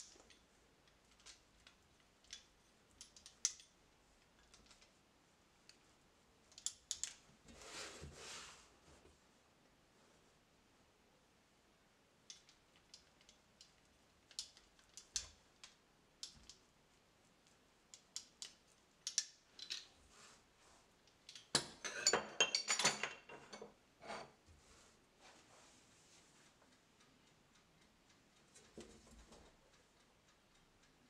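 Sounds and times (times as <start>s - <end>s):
metal clinks and knocks: 21.5s - 23.8s.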